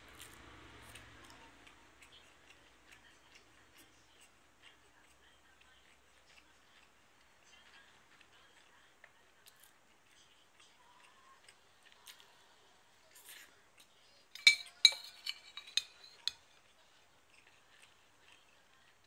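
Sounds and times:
metal spoon clinking in ceramic bowl: 14.4s - 16.4s.

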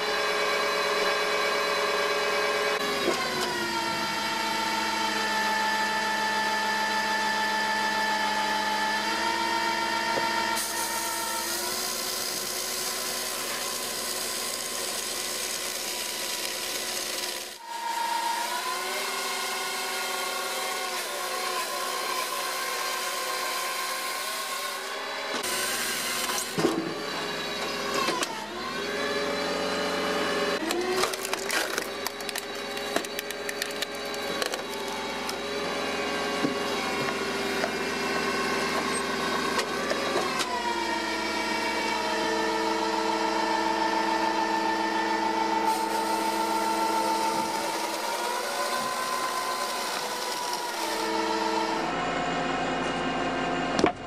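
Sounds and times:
machine motor humming: 30.6s - 37.8s.

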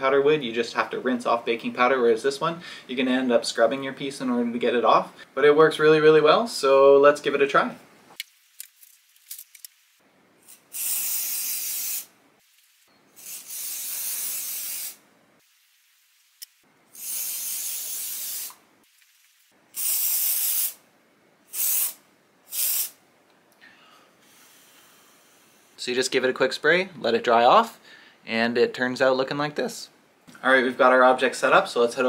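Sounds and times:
aerosol can spraying: 10.4s - 15.6s, 16.9s - 19.0s, 19.8s - 20.8s, 21.5s - 23.0s.

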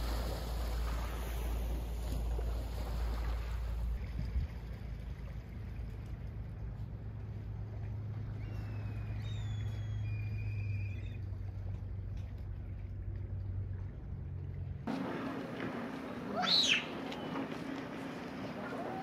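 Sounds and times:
low engine hum: 0.0s - 19.0s
wind buffeting microphone: 3.9s - 4.9s
high whistled calls: 8.4s - 11.2s, 16.4s - 17.5s.

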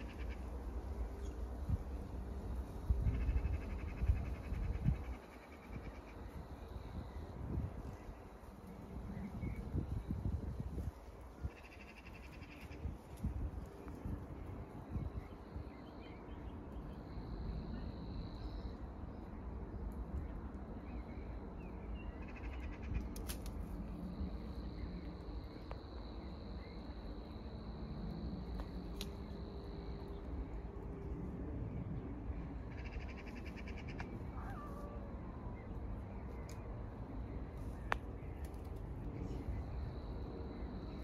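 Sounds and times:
low wind rumble: 0.0s - 41.0s
rapid bird chatter: 11.4s - 13.1s, 32.7s - 34.7s.

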